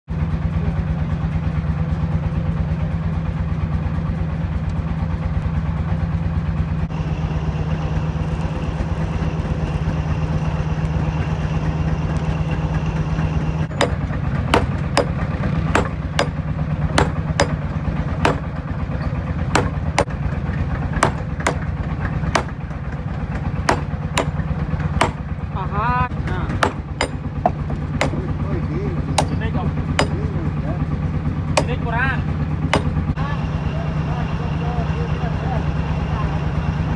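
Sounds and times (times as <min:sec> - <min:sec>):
hammer striking steel on anvil: 0:13.7 - 0:16.4, 0:17.0 - 0:18.6, 0:19.5 - 0:20.2, 0:21.0 - 0:21.7, 0:22.3 - 0:22.7, 0:23.3 - 0:25.3, 0:26.5 - 0:28.4, 0:29.2 - 0:30.3, 0:31.6 - 0:31.9, 0:32.7 - 0:33.0.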